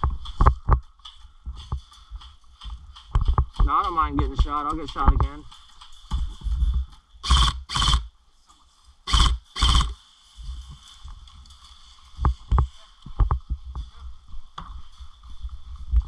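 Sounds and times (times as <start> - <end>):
airsoft rifle bursts: 7.2 - 8.1, 9.1 - 10.0.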